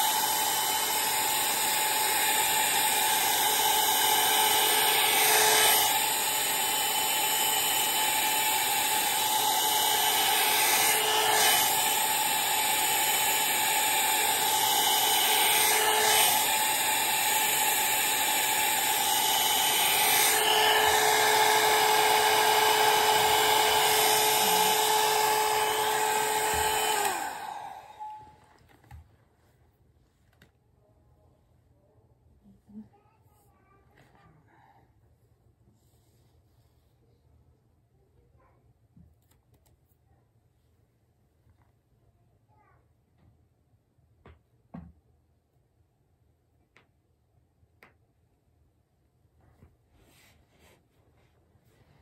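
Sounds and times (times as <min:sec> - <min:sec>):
hair dryer blowing: 0:00.0 - 0:29.0.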